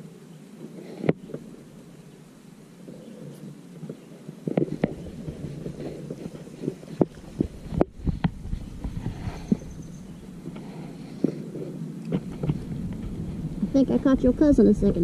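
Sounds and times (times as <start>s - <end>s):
sharp knocks and thumps: 4.4s - 9.7s, 12.0s - 13.8s
low rumble: 7.3s - 15.0s.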